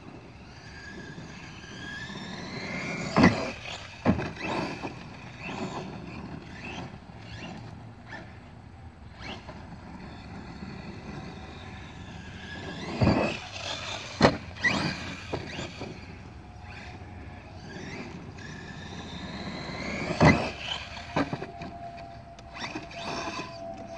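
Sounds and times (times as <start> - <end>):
electric motor whining: 0.0 - 23.9
toy car thudding on ground: 1.8 - 7.6, 12.3 - 16.2, 19.3 - 21.7.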